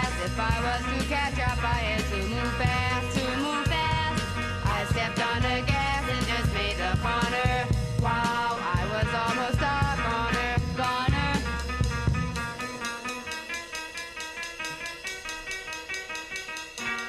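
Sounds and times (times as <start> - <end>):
bass line: 0.0 - 13.6
drum kit: 0.0 - 17.0.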